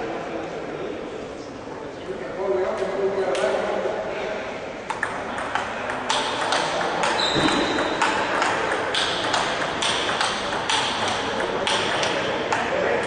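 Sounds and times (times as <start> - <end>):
murmur of voices: 0.0 - 13.0
table tennis ball clicking: 4.9 - 12.7
high squeak: 7.1 - 8.0.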